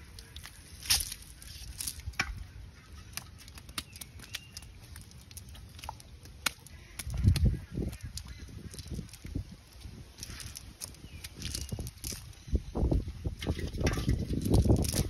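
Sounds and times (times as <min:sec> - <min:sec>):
fish flapping: 0:03.0 - 0:12.3.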